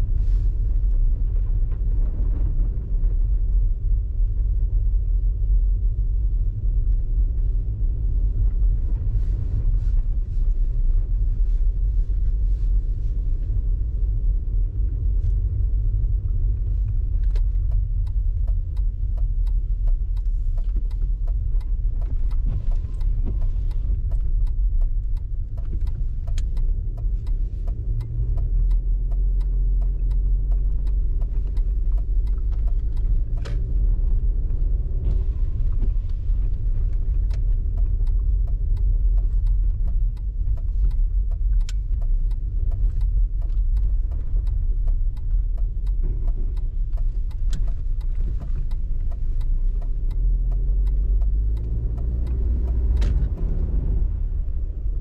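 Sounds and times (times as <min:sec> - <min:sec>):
car engine and road rumble: 0:00.0 - 0:55.0
faint ticks: 0:11.5 - 0:55.0.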